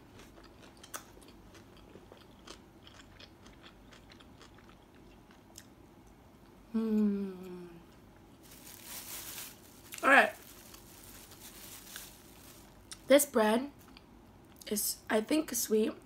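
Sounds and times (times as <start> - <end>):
person chewing food: 0.0 - 5.7
closed-mouth hum: 6.4 - 8.2.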